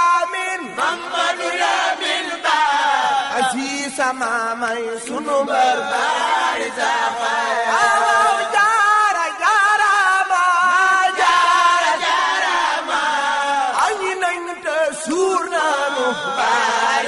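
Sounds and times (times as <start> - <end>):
voices singing devotional chant: 0.0 - 17.0.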